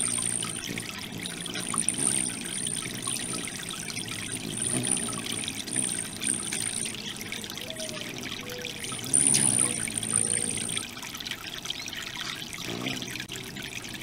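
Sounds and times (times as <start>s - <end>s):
fountain water splashing: 0.0s - 14.0s.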